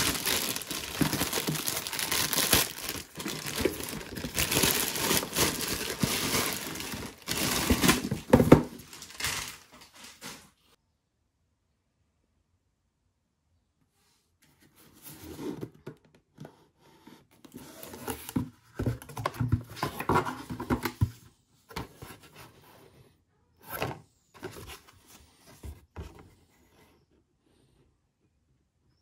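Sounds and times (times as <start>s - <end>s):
packaging crinkling and tearing: 0.0s - 10.4s.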